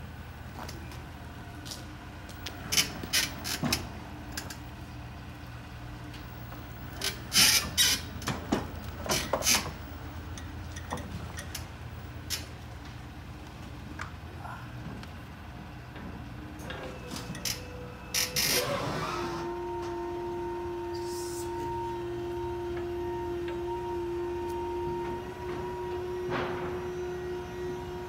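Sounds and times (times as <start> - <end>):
pallet jack clanks and squeaks: 7.0 - 11.7, 16.6 - 19.5, 24.9 - 28.0.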